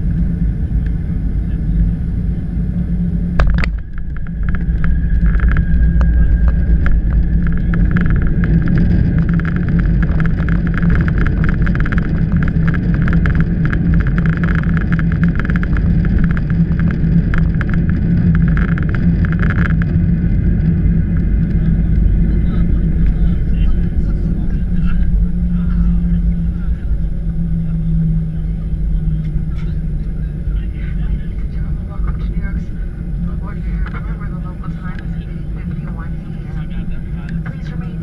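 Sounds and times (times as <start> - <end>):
low rumble of landing rollout: 0.0 - 38.0
airplane touchdown thump: 3.3 - 12.2.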